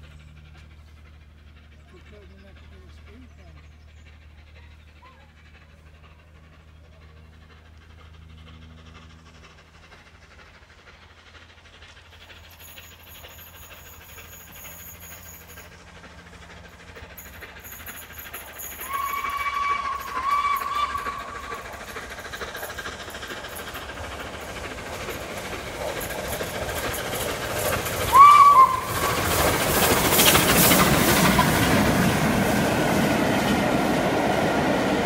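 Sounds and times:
steam whistle: 18.8s - 21.6s, 28.1s - 29.2s.

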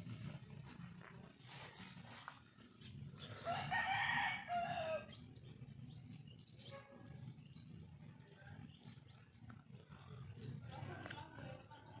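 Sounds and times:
rooster crowing: 3.4s - 5.2s.

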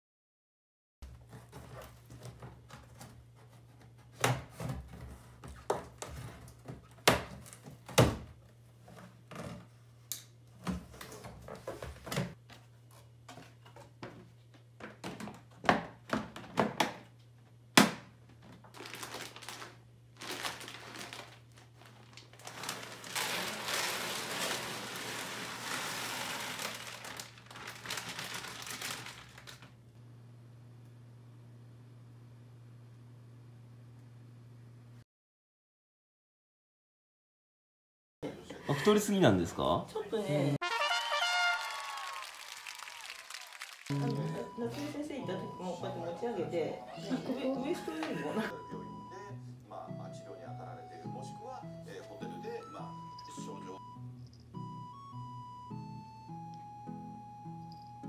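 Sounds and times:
crinkling: 18.4s - 29.8s.

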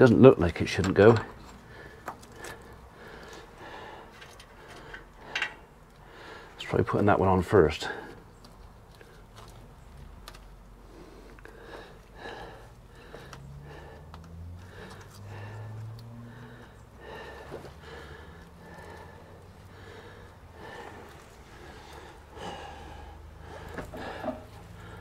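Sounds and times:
man breathing hard and sniffing: 1.3s - 6.6s, 10.6s - 25.0s.

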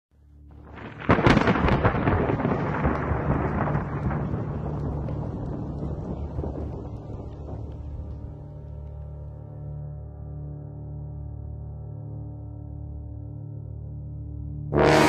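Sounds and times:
steady low drone: 0.2s - 15.0s
loud crackling rumbling crash: 0.5s - 9.2s.

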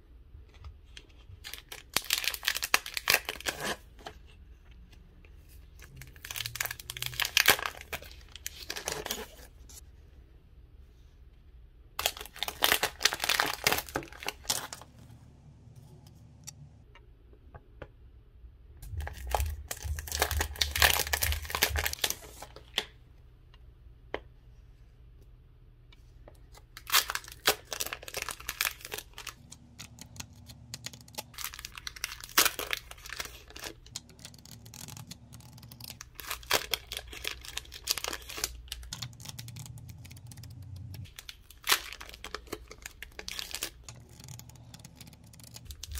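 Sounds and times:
plastic packaging crinkling: 1.4s - 3.9s, 5.7s - 9.5s, 12.0s - 14.9s, 18.9s - 22.8s, 26.8s - 45.9s.

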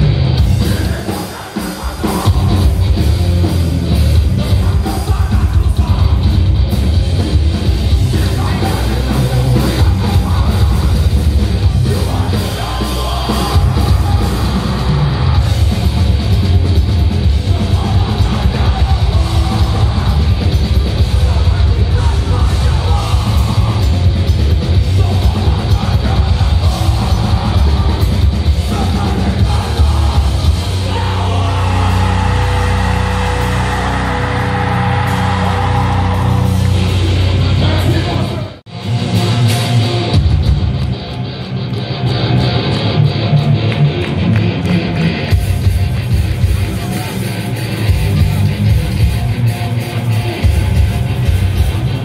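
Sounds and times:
fast pounding drums: 0.0s - 41.0s, 44.7s - 52.0s
distorted electric guitars: 0.0s - 52.0s
shouted vocals: 8.0s - 15.5s, 17.3s - 24.0s, 24.7s - 38.6s.

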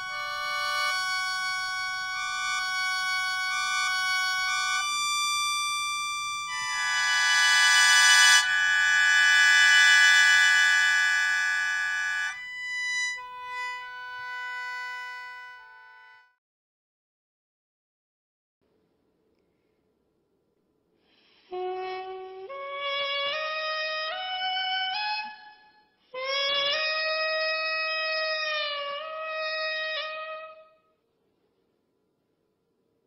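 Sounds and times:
mouth organ chords: 0.0s - 16.1s.

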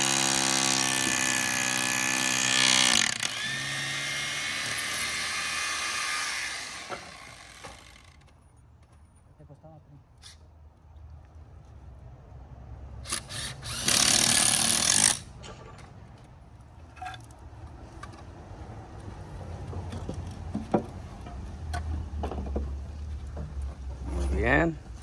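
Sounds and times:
power drill driving screw into wood: 0.0s - 8.2s, 13.0s - 15.3s
knocks and clicks of wood and tools: 6.8s - 9.0s, 19.4s - 24.1s.

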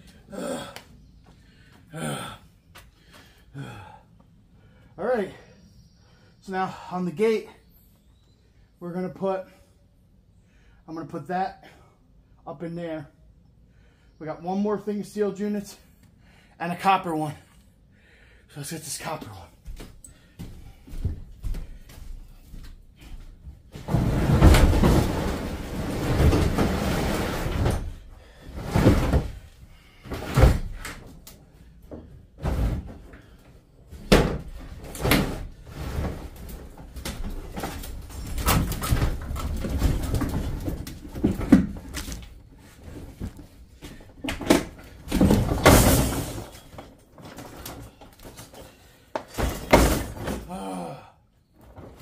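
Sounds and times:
metal knocks and thuds: 23.7s - 28.0s, 44.3s - 46.9s, 49.3s - 50.5s
scrap metal scraping and rattling: 23.8s - 29.4s.

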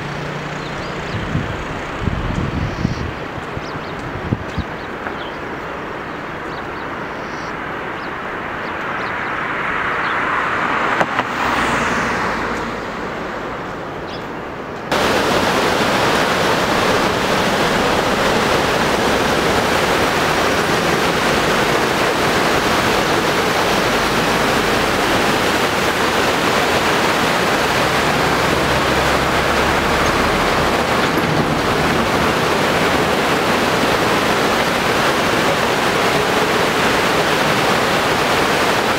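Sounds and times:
vehicle road noise: 0.0s - 38.9s
river rapids rushing: 3.2s - 38.9s.

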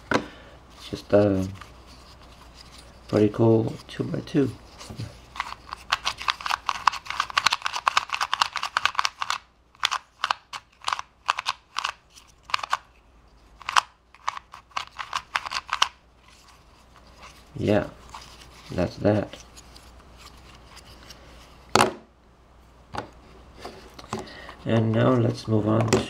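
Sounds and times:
puzzle cube clicking: 5.4s - 12.9s, 13.6s - 16.0s.

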